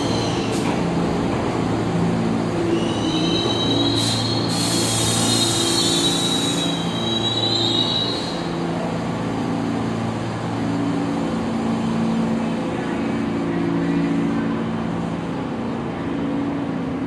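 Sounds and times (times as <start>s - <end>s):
subway cars humming: 0.0s - 17.0s
burst of hiss: 4.0s - 6.6s.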